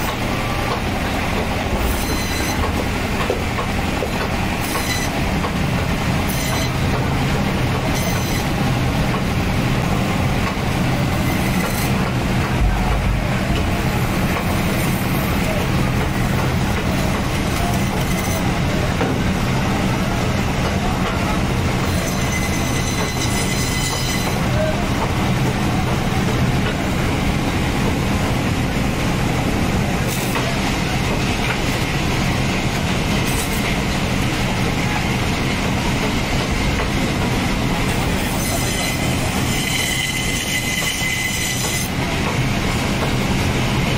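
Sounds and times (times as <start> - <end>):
band saw cutting through fish: 11.2 - 12.0.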